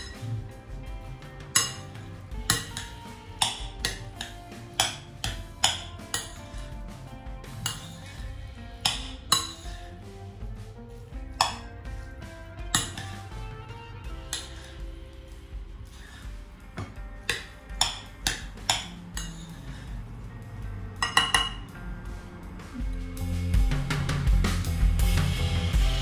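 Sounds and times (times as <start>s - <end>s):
background music: 0.0s - 26.0s
utensil clinking against bowl: 1.5s - 6.6s, 7.6s - 8.2s, 16.8s - 19.6s, 21.0s - 21.6s.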